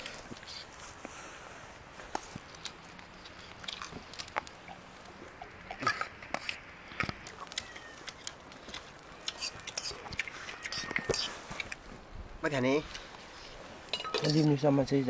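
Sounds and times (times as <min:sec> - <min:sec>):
person chewing: 0:02.6 - 0:04.8, 0:05.4 - 0:11.8.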